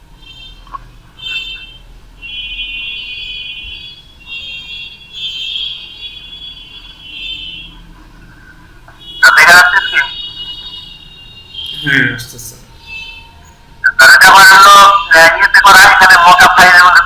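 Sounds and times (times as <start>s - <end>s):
shrill high-pitched alarm tone: 12.8s - 16.7s.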